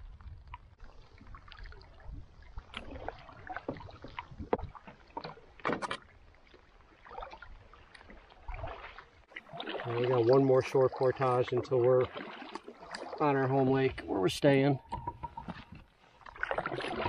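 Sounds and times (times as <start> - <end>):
canoe paddle strokes in water: 0.0 - 14.2, 14.8 - 17.0
water splashes and drips: 0.0 - 17.0.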